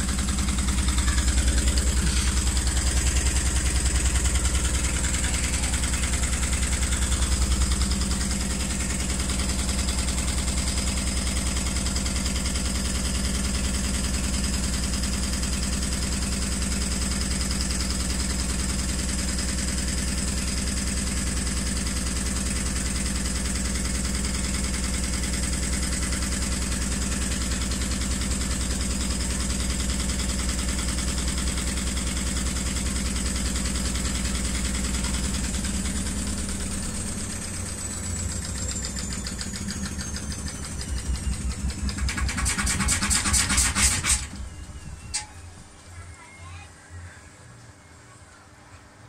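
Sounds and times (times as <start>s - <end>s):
rhythmic knocking and rattling: 0.0s - 13.2s, 33.5s - 44.5s
washer drum spinning with whine: 0.0s - 46.0s.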